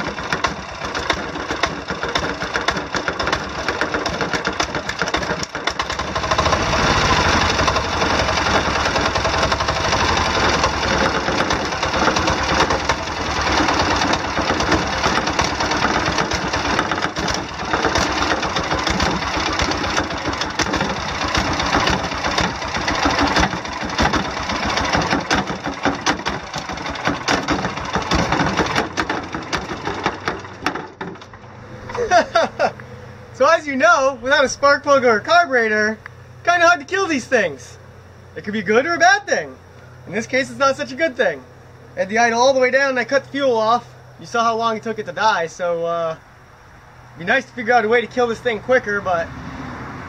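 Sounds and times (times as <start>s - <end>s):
diesel engine knocking: 0.0s - 31.5s.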